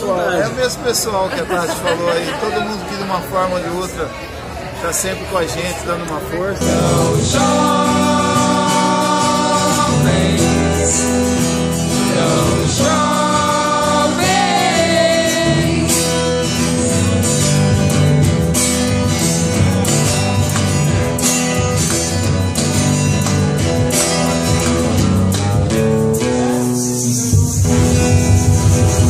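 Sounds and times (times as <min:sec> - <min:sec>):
acoustic guitar strumming: 0:06.6 - 0:29.0.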